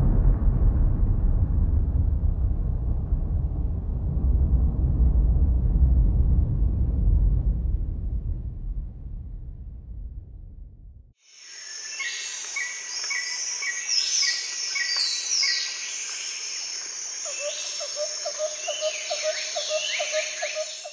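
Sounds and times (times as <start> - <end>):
low rumble: 0.0 - 11.2
high insect drone: 11.2 - 20.9
birds singing: 17.2 - 20.9.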